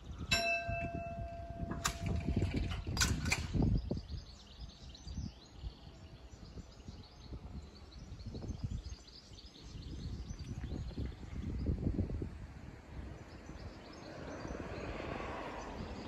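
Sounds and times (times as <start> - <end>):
level crossing bell ringing: 0.3 - 2.5.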